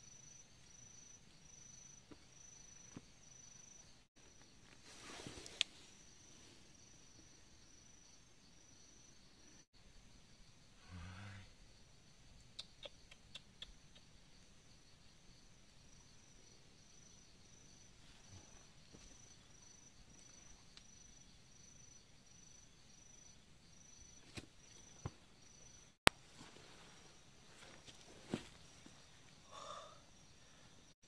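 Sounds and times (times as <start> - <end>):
insect chirping: 0.0 - 31.0.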